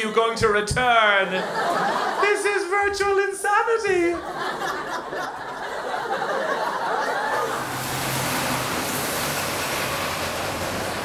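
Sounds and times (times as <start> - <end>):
people laughing: 0.0 - 8.2
crowd chatter: 4.2 - 7.9
passing traffic: 6.1 - 11.0.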